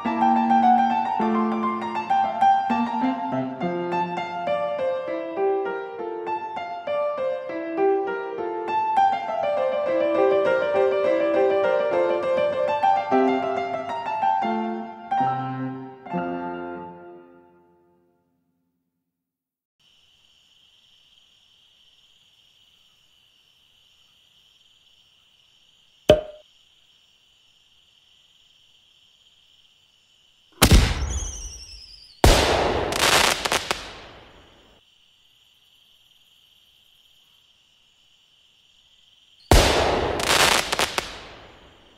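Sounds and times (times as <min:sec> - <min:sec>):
popper bangs and crackle: 0:30.6 - 0:34.4, 0:39.5 - 0:41.7
falling whistles: 0:30.8 - 0:32.2.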